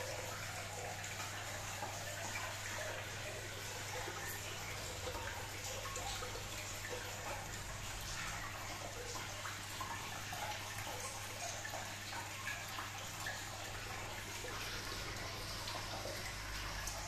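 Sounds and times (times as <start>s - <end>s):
pump humming: 0.0s - 17.0s
water trickling and bubbling: 0.0s - 17.0s.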